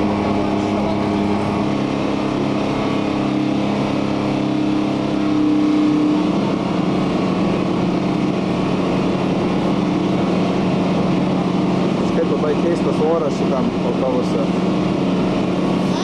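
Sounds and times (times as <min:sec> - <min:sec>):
bus engine running: 0:00.0 - 0:16.0.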